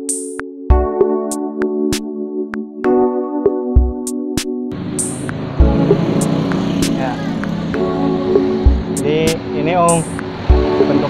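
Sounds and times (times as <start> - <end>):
synthesizer chords: 0.0 - 11.0
drum machine beat: 0.1 - 1.0, 3.7 - 4.1, 5.0 - 11.0.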